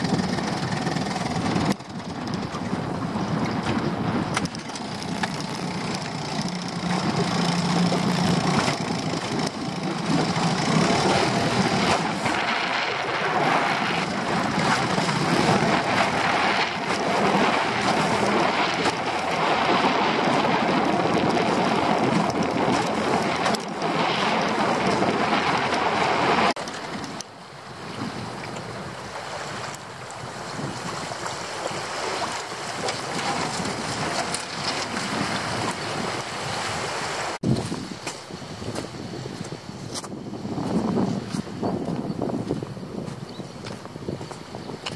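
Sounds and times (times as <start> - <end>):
outboard motor running: 0.0 - 39.0
water rushing past hull: 0.0 - 39.3
wind on microphone: 0.0 - 44.9.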